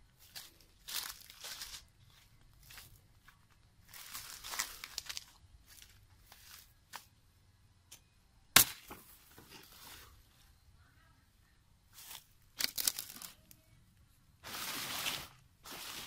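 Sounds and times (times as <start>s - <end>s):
footsteps through dry grass and leaves: 0.0s - 7.1s, 11.9s - 13.4s, 14.4s - 16.0s
sharp crack: 8.5s - 9.2s.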